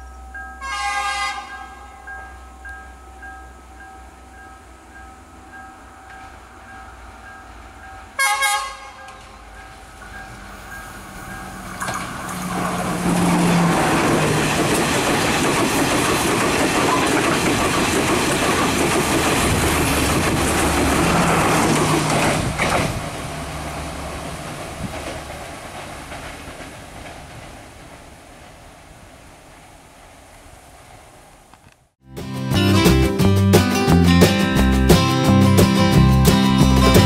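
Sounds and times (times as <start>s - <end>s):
diesel train engine running: 1.8s - 28.9s
wheels clattering over rail joints: 5.0s - 28.8s.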